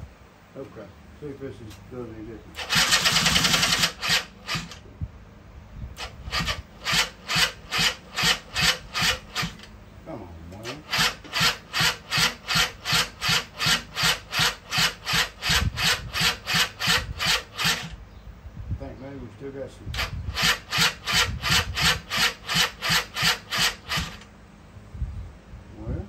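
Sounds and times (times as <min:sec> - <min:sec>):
small engine cranking on starter: 0:02.5 - 0:04.8, 0:06.0 - 0:09.7, 0:10.6 - 0:18.0, 0:19.9 - 0:24.3.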